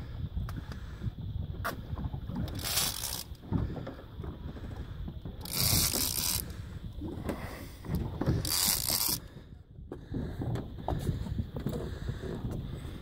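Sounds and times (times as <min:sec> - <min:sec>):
fishing reel gears clicking: 0:02.4 - 0:03.4, 0:05.4 - 0:06.6, 0:08.3 - 0:09.3.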